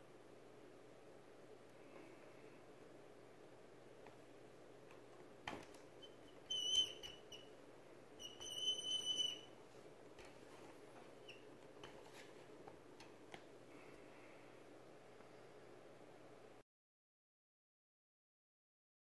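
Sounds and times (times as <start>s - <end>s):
rod squeaking through barrel: 6.0s - 7.5s, 8.2s - 9.6s.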